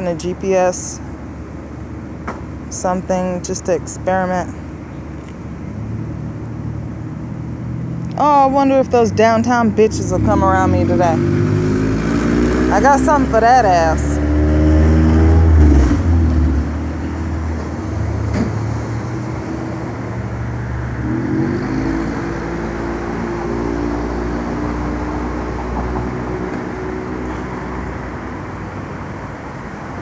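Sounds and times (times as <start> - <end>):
vehicle engine droning: 0.0 - 30.0
engine pulling away: 9.6 - 28.2.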